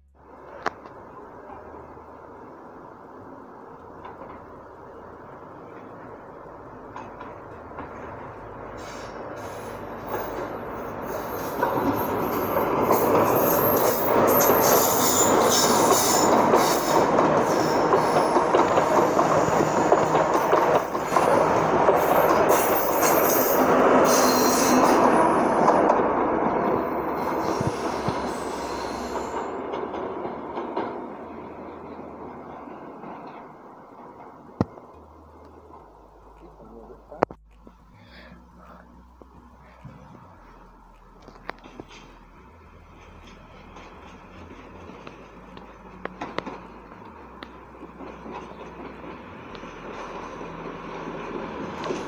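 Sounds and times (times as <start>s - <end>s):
diesel train passing: 0.0s - 52.0s
rail noise: 0.0s - 52.0s
wheel squeal: 11.0s - 20.2s, 22.0s - 25.5s.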